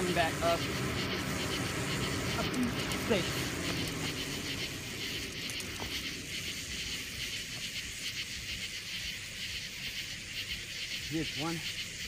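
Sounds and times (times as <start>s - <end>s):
low rumble: 0.0s - 8.8s
night insects buzzing: 0.0s - 12.0s.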